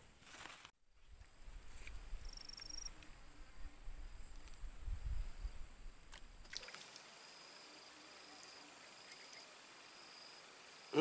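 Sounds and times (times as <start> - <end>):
insect chorus shrilling: 6.5 - 11.0.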